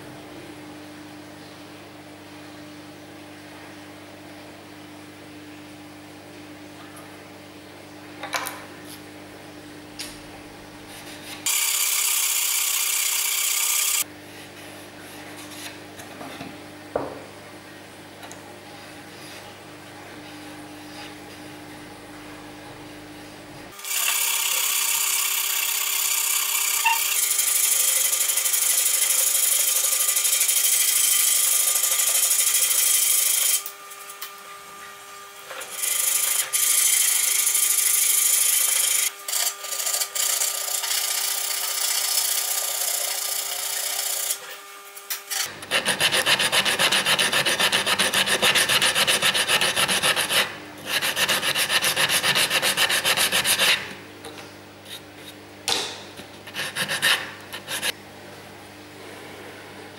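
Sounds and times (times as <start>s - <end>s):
sandpaper rubbing on wood: 45.6s - 53.9s, 56.4s - 58.0s.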